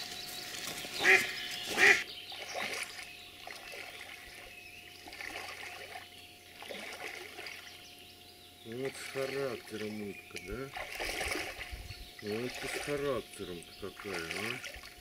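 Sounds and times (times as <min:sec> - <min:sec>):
duck quacking loudly: 0:01.0 - 0:02.0.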